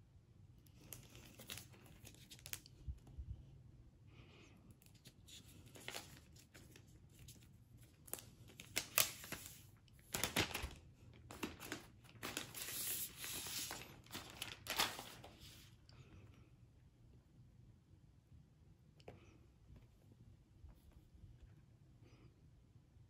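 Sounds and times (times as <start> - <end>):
plastic film peeling and crackling: 0.7 - 2.8, 4.8 - 15.6.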